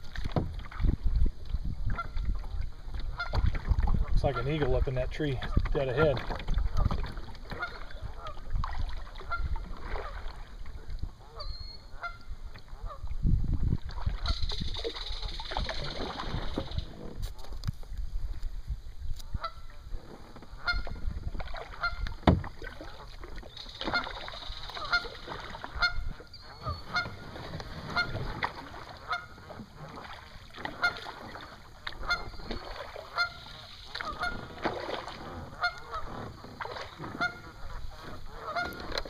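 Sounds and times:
geese honking: 0:07.5 - 0:08.4, 0:11.3 - 0:13.0, 0:20.6 - 0:21.0, 0:21.7 - 0:22.2, 0:23.8 - 0:27.3, 0:27.9 - 0:29.5, 0:30.7 - 0:31.2, 0:32.0 - 0:34.6, 0:35.4 - 0:39.0.

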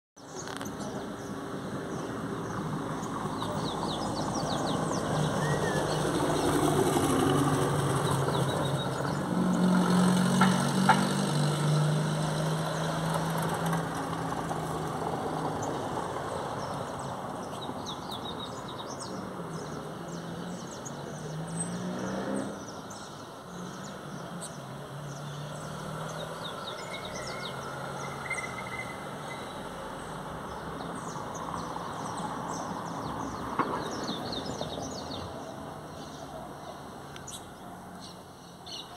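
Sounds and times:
small birds chirping: 0:00.2 - 0:07.3, 0:15.6 - 0:38.9.

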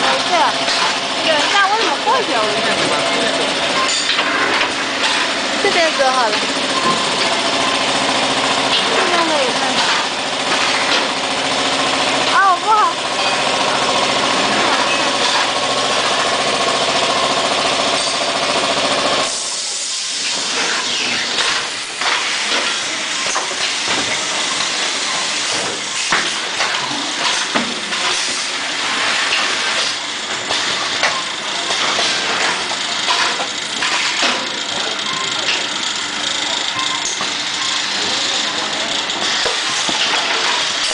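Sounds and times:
machine humming: 0:00.0 - 0:40.9
mechanical clicks and clacks: 0:20.3 - 0:40.9.

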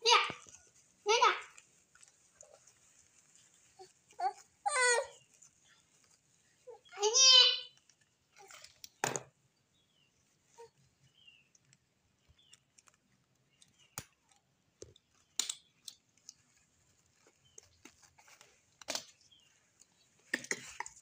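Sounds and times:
diaper plastic rustling: 0:00.2 - 0:06.9, 0:15.2 - 0:21.0.

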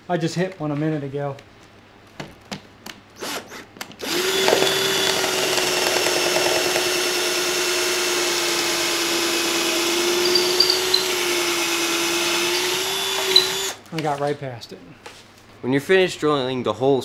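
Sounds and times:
cordless drill boring into wood: 0:03.2 - 0:13.8.

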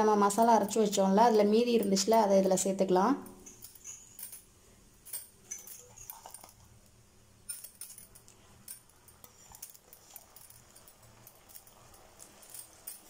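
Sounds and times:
spoon clinking against utensil: 0:03.2 - 0:04.4, 0:05.1 - 0:06.7.

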